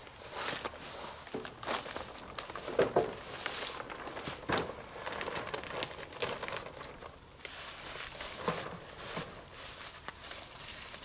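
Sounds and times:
footsteps in dry leaves: 0.0 - 11.0
plastic sheeting crinkling: 0.0 - 11.0.

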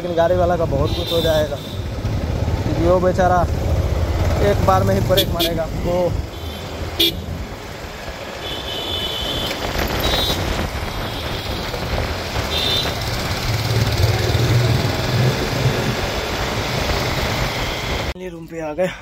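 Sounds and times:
road and wind noise: 0.0 - 18.8
motorcycle engine running: 1.0 - 8.0, 10.0 - 18.1
deep engine drone: 13.3 - 18.2.

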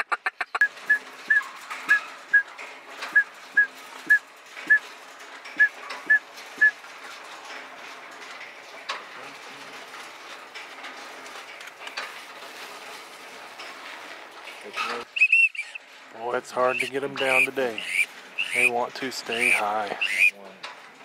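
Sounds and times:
high whistled notes: 15.2 - 15.8.

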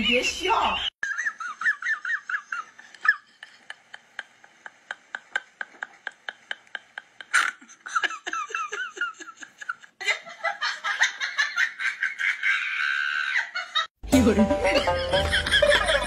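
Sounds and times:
music: 14.0 - 16.0.

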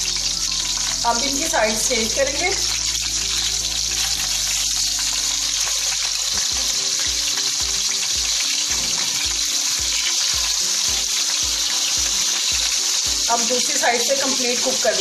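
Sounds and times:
background music with bass beat: 0.0 - 1.3, 2.6 - 13.3
meat sizzling in frying oil: 0.0 - 15.0.

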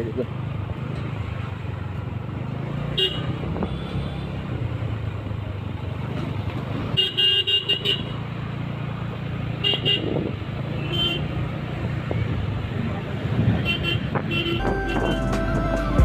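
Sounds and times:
vehicle horn short beeps: 13.7 - 15.4.

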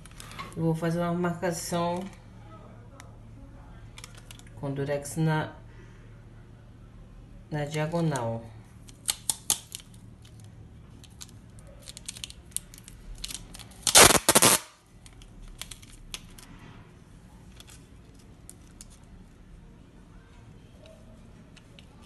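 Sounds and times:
packing tape ripping: 8.9 - 9.9, 11.0 - 16.5.

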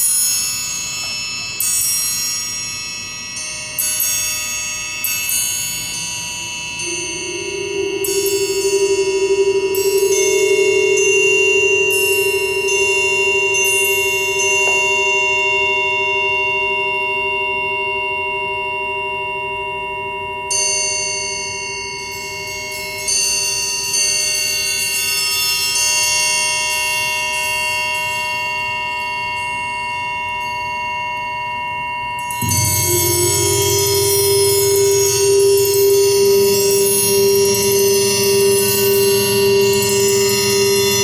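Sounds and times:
triangles ringing: 0.0 - 41.0
steady low tone: 5.3 - 24.0, 32.2 - 41.0.

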